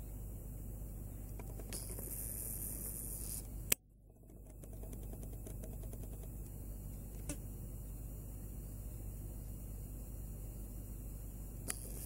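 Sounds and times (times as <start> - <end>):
background hiss: 0.0 - 3.8, 6.1 - 12.0
zoom lens motor whine: 1.3 - 3.6, 11.6 - 12.0
camera click: 11.7 - 12.0.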